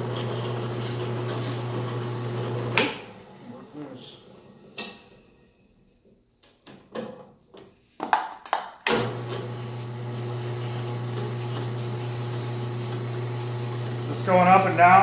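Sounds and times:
drill press motor humming: 0:00.0 - 0:04.7, 0:09.0 - 0:15.0.

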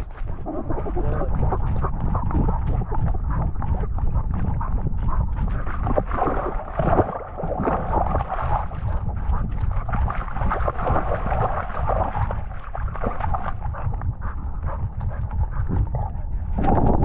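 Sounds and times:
wind and movement rumble: 0:00.0 - 0:17.0
dog panting: 0:00.2 - 0:06.0, 0:13.2 - 0:16.5.

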